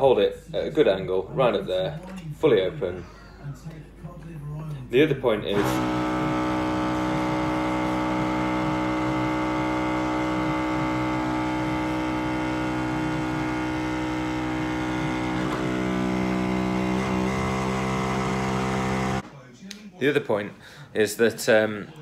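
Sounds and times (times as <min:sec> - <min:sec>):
beer machine humming: 0:05.4 - 0:19.2.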